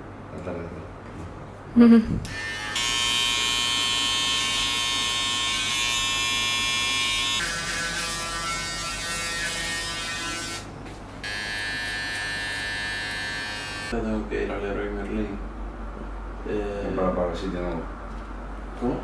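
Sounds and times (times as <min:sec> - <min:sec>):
electric hair clippers buzzing: 0:02.2 - 0:14.0.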